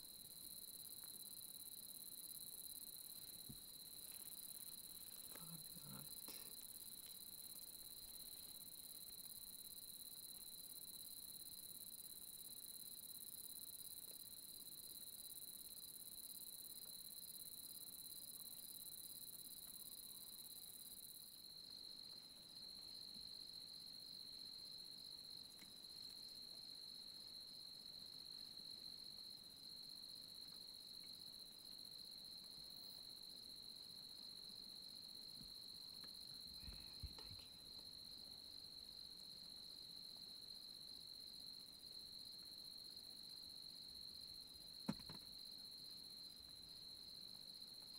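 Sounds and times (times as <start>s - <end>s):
night insects trilling: 0.0s - 47.9s.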